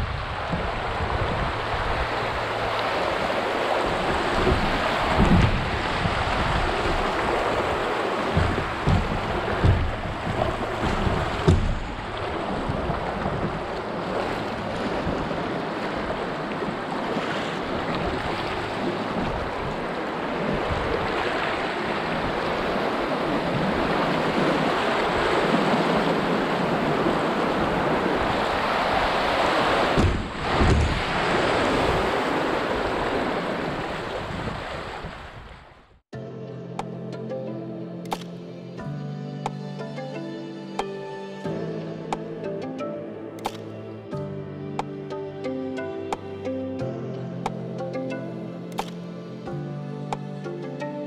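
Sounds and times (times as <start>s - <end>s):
river rapids rushing and splashing: 0.0s - 35.1s
wind buffeting microphone: 0.0s - 35.8s
low thumps: 3.9s - 13.8s.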